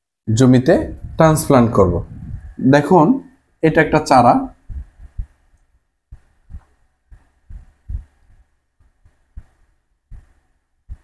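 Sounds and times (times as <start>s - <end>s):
marker drawing on whiteboard: 6.1s - 11.0s.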